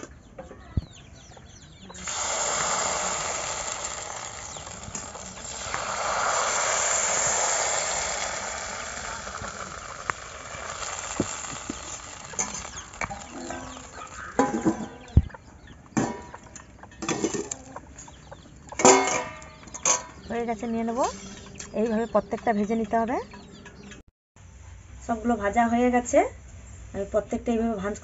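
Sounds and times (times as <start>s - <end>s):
batter sizzling in hot pan: 2.0s - 15.0s.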